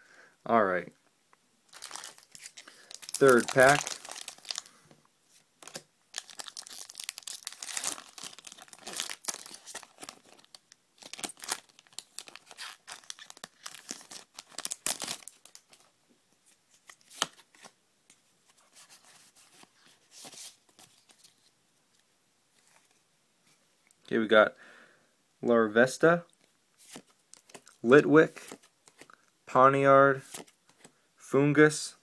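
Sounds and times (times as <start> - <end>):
foil wrapper tearing and crinkling: 1.7 - 4.7, 5.6 - 15.8
cards rustling: 1.7 - 15.9, 16.7 - 17.8, 18.5 - 21.5, 26.8 - 29.2, 30.2 - 30.9.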